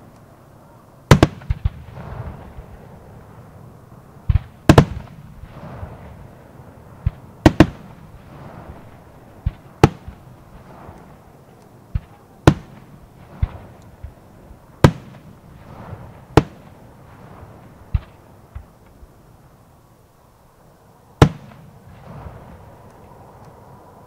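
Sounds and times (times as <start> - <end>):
firework shells bursting: 4.3 - 6.2, 7.0 - 19.1
dull firework launch thump: 14.8 - 19.0.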